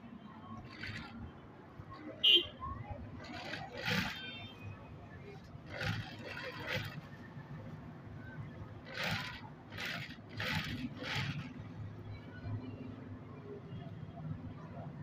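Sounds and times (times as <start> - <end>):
sewing machine stitching: 0.6 - 1.2, 3.2 - 4.3, 5.6 - 7.1, 8.8 - 11.6.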